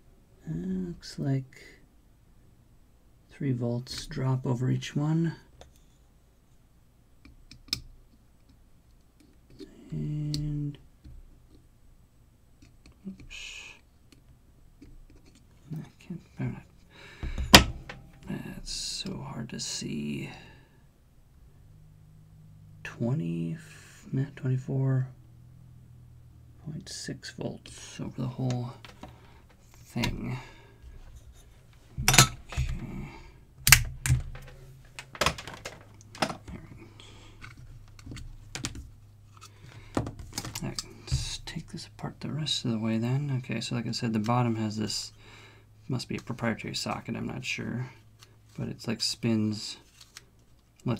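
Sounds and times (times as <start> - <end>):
low steady hum: 0.0 - 50.9
handling clicks and knocks: 17.2 - 18.2, 28.8 - 30.2, 31.2 - 33.0, 33.6 - 36.6.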